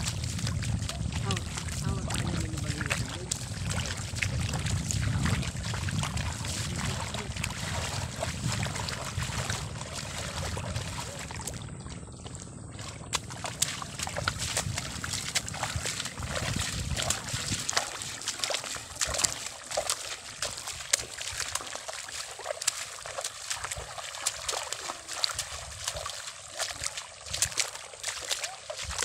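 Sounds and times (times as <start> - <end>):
wind on microphone: 0.0 - 19.4
footsteps splashing through mud: 0.0 - 29.0.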